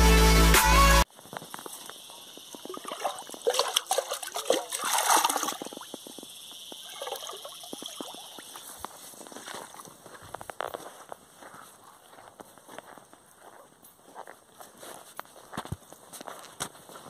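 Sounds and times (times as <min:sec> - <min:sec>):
water splashing and pouring from pan: 0:02.7 - 0:06.0, 0:06.8 - 0:08.6.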